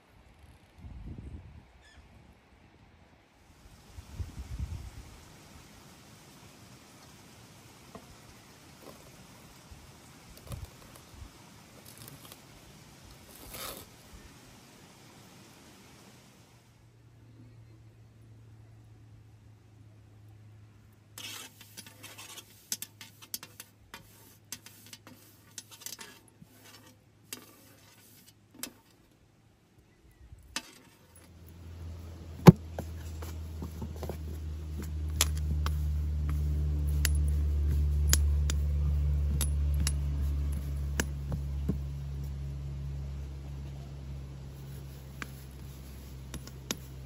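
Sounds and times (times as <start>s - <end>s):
low steady hum: 28.4s - 47.0s.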